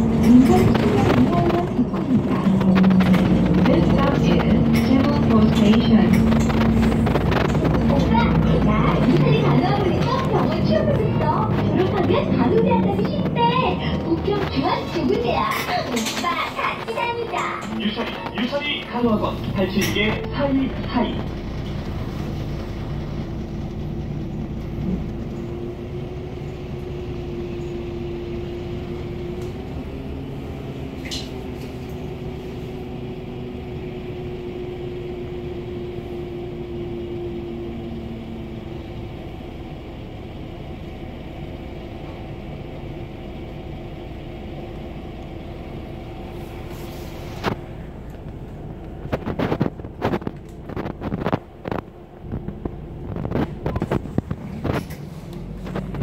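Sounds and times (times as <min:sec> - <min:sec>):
bus engine hum: 0:00.0 - 0:56.0.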